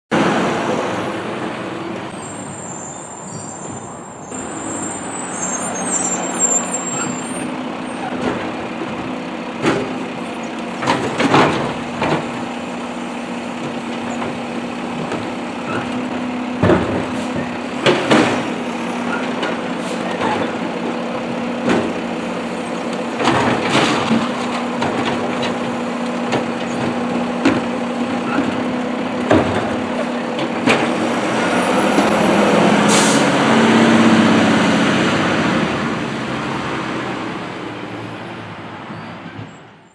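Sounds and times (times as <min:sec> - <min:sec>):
garbage truck engine humming: 0:00.2 - 0:38.9
hydraulic arm and cart clanking: 0:13.5 - 0:33.3
air brake hiss: 0:32.9 - 0:33.3.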